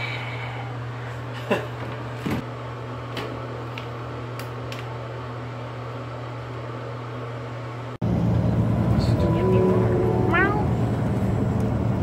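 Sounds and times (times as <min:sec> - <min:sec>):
road and engine rumble in truck cab: 0:08.0 - 0:12.0.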